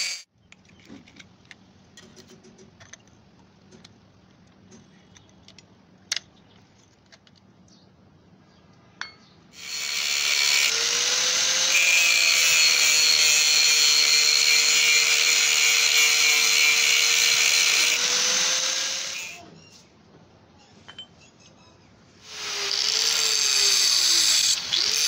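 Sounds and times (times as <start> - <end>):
angle grinder cutting metal: 0.0 - 0.3, 9.6 - 19.4, 22.2 - 25.0.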